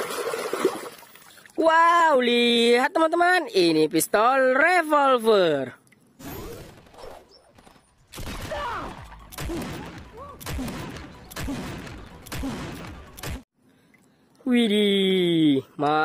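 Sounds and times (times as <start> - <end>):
people shouting: 8.4 - 12.8.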